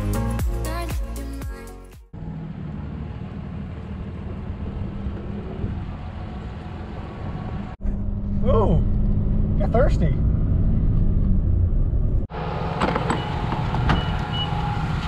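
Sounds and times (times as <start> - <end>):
background music: 0.0 - 2.1
road and wind noise: 2.1 - 15.0
truck engine drone: 2.1 - 15.0.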